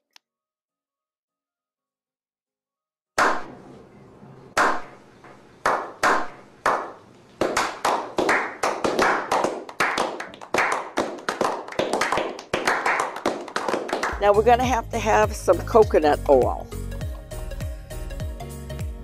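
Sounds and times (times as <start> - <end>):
people clapping together: 4.6 - 4.9, 5.6 - 14.4
hand claps: 4.6 - 5.0, 5.6 - 14.7.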